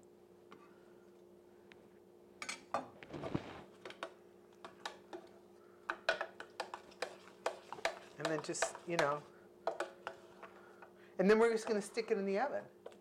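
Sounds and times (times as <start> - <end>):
faint steady hum: 0.0 - 13.0
spoon tapping pan: 3.8 - 5.3, 5.9 - 10.2
spoon scraping and clinking pan: 6.1 - 10.5.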